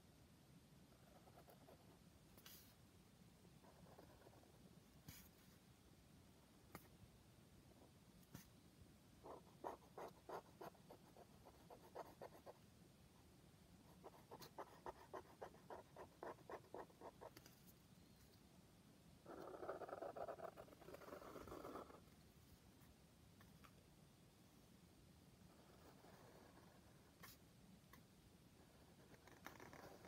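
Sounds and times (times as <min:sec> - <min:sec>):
pen scratching on paper: 0:03.6 - 0:05.5, 0:09.2 - 0:12.6, 0:14.0 - 0:17.5, 0:19.3 - 0:22.0, 0:25.5 - 0:27.4, 0:28.6 - 0:30.0.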